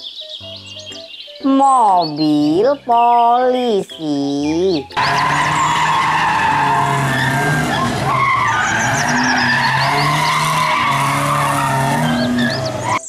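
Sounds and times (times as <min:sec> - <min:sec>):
car engines revving: 0:05.0 - 0:13.0
tyres squealing and skidding: 0:05.0 - 0:13.0.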